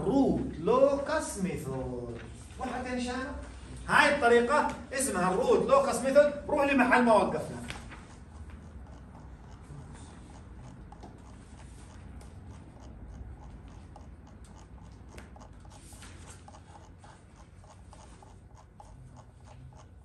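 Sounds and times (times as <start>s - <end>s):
steady low hum: 0.0s - 20.0s
faint clicks and rustles: 7.3s - 20.0s.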